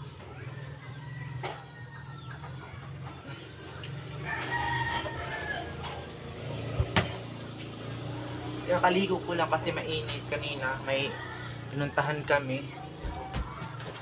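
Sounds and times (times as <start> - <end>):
rooster crowing: 0.0 - 6.7, 9.5 - 13.7.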